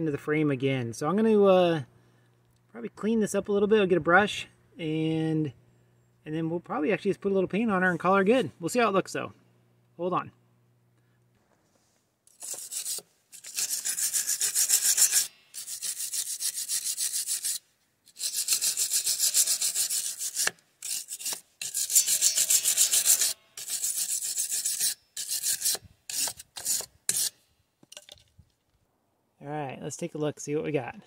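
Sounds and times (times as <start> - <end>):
wire brush scrubbing metal: 12.3 - 27.4.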